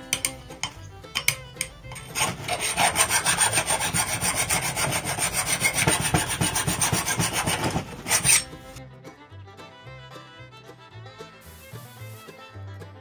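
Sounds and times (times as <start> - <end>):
hand file rasping on metal: 0.0 - 8.8.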